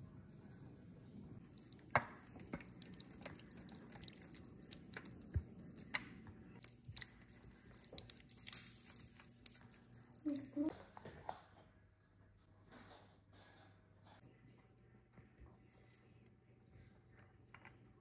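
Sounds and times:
wet food squelching: 1.4 - 10.7.

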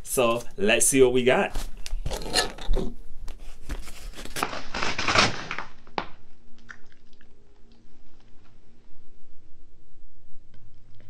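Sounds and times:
paper mailer crinkling and tearing: 3.7 - 6.0.

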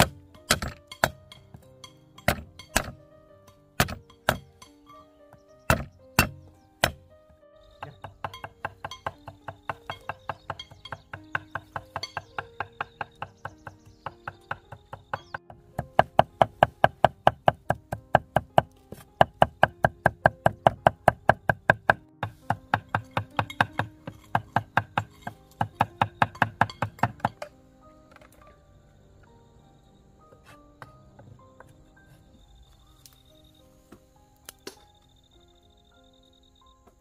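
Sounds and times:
background music with held notes: 0.0 - 37.0
knife chopping on wooden board: 3.8 - 4.5.

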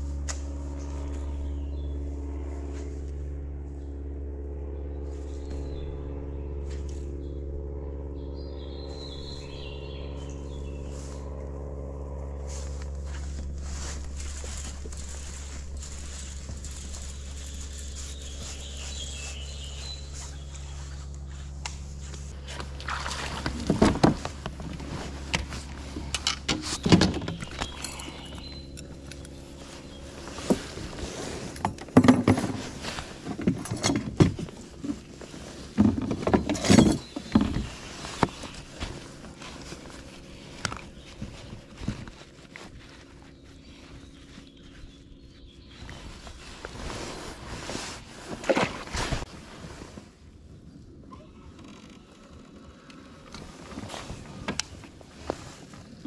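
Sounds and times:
low steady hum: 0.0 - 56.0.

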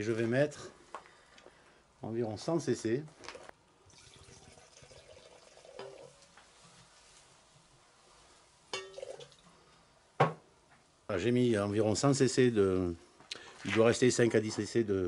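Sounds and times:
liquid trickling into metal cup: 3.9 - 6.3, 8.8 - 9.4.

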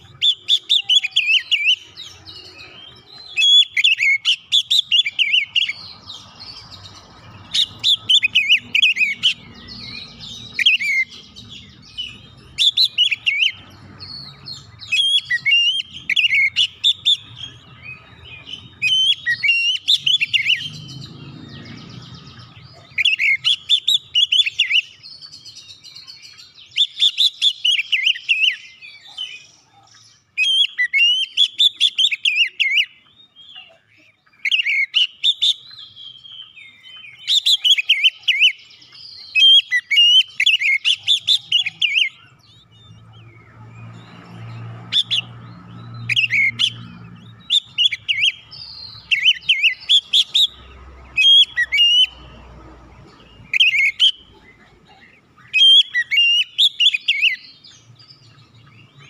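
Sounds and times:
bird singing whistled phrases: 0.0 - 5.8, 7.5 - 21.8, 22.6 - 29.6, 34.4 - 43.1, 45.9 - 50.6, 55.4 - 57.8.

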